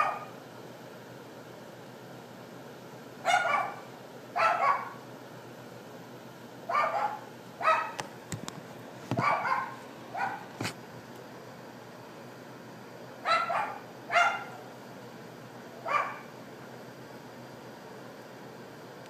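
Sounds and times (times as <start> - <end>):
dog barking: 0.0 - 0.4, 3.2 - 5.0, 6.7 - 8.0, 9.2 - 10.5, 13.2 - 14.6, 15.8 - 16.3.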